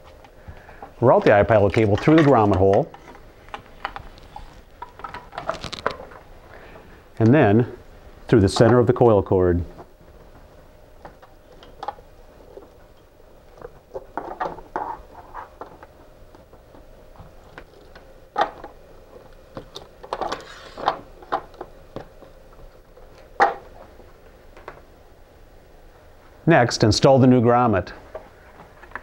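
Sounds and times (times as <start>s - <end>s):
cable rustling and clicking: 1.1s - 6.3s.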